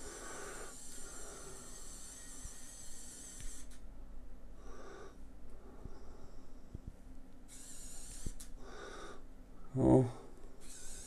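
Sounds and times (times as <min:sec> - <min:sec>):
small motor whirring: 0:00.0 - 0:03.8, 0:07.5 - 0:08.5, 0:10.6 - 0:11.0.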